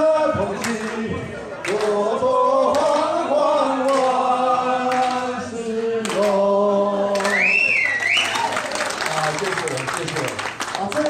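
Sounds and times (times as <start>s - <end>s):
men singing together: 0.0s - 7.6s.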